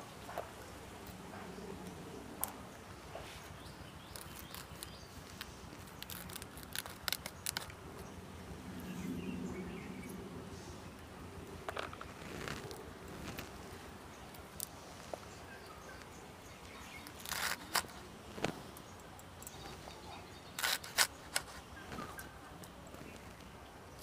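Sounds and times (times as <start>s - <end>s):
florets pulled apart by hand: 4.1s - 7.8s, 17.0s - 18.8s, 20.6s - 22.3s
sharp clicks of cutting: 20.5s - 22.3s.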